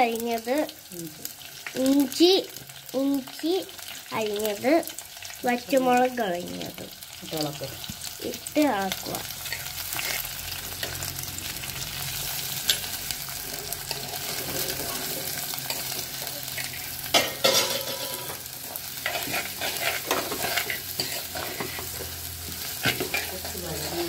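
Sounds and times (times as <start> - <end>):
vegetables sizzling in hot oil: 0.0 - 24.0
steel spoon scraping pot: 16.6 - 18.4, 19.0 - 22.1, 22.8 - 23.5.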